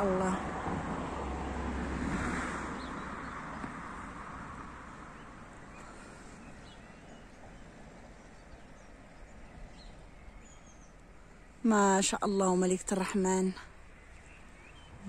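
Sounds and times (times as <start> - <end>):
passing vehicle road noise: 0.0 - 11.7.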